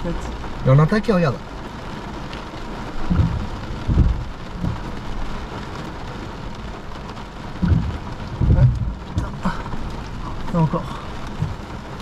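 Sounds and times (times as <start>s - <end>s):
heavy rain on car roof: 0.0s - 12.0s
low thunder rumbles: 2.9s - 5.4s, 7.4s - 10.3s.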